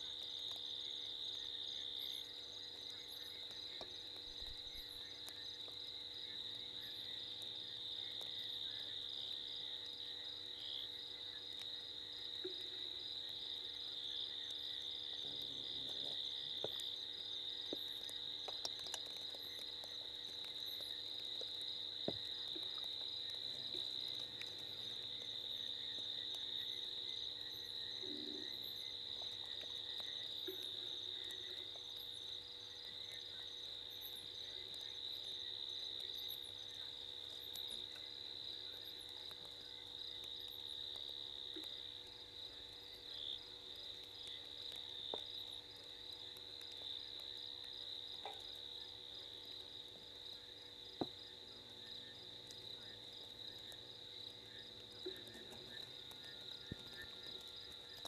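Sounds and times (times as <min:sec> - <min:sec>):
steady high insect trill: 0:00.0 - 0:58.0
low frog croaks: 0:17.6 - 0:32.0, 0:48.2 - 0:48.7, 0:50.9 - 0:58.0.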